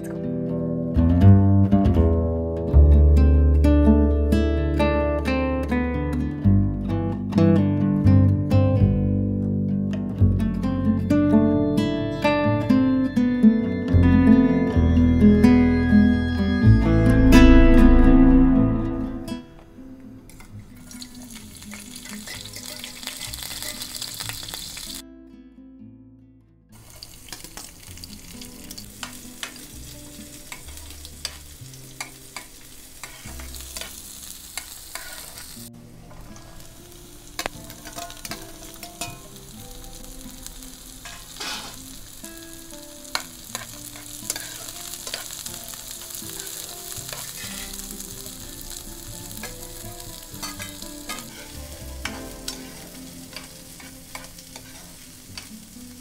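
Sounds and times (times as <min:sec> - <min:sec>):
metal spoon scraping a pan: 0:20.3 - 0:24.6, 0:30.5 - 0:35.6, 0:37.4 - 0:39.3, 0:41.0 - 0:41.9, 0:43.1 - 0:45.4, 0:46.4 - 0:48.4, 0:50.2 - 0:55.5
vegetables sizzling in oil: 0:20.3 - 0:25.0, 0:26.8 - 0:56.0.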